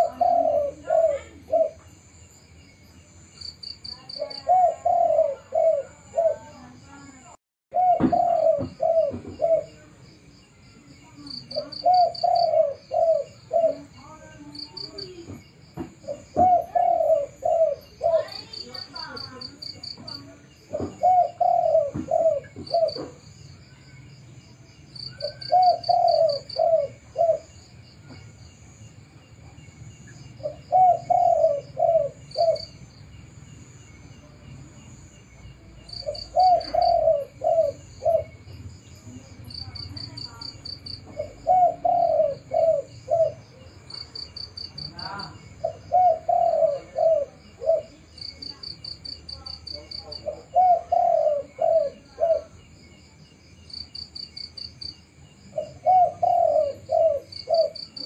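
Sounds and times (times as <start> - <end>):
dove cooing: 0.0 - 1.9, 3.8 - 6.8, 7.7 - 10.0, 11.2 - 23.3, 25.0 - 27.7, 30.4 - 32.9, 35.8 - 52.6, 55.5 - 58.0
insect chirps: 0.0 - 58.0.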